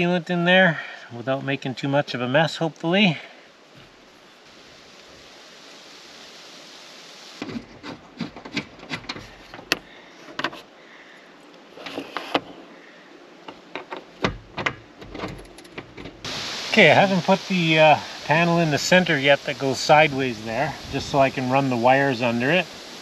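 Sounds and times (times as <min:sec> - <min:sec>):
soft steady hiss: 0:00.0 - 0:23.0
panels clicking and knocking: 0:07.4 - 0:10.6, 0:13.5 - 0:16.3.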